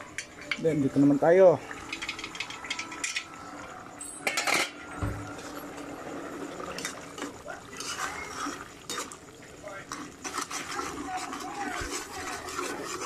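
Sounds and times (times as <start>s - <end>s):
metal pot lid clinking: 4.0s - 5.0s.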